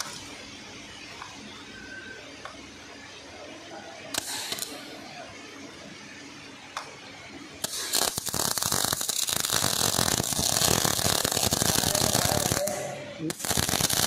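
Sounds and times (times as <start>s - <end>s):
welding arc crackling: 4.0s - 5.4s, 6.8s - 14.0s.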